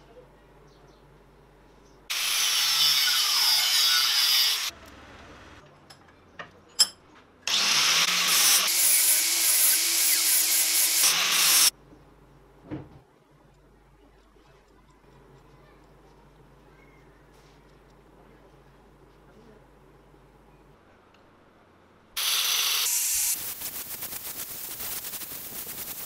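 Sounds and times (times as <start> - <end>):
angle grinder cutting steel: 2.1 - 4.7, 7.5 - 11.7, 22.2 - 26.0.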